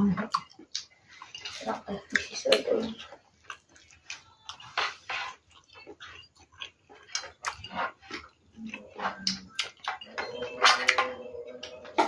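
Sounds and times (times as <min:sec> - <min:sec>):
wet chewing and lip-smacking: 0:00.0 - 0:12.0.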